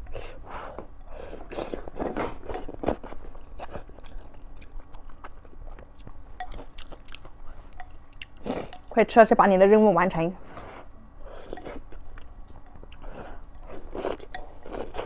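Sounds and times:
close-miked chewing: 0:01.0 - 0:09.0, 0:10.9 - 0:15.0.

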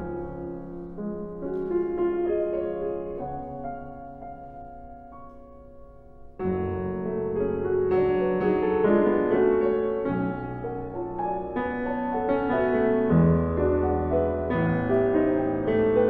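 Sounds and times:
solo piano classical music: 0:00.0 - 0:16.0.

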